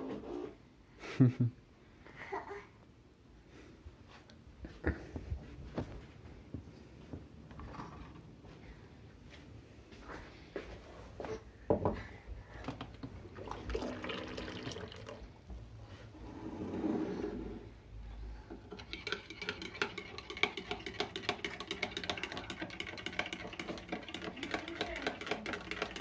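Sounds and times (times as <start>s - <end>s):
liquid pouring into mug: 13.2s - 15.4s
teaspoon clinking in mug: 18.7s - 26.0s.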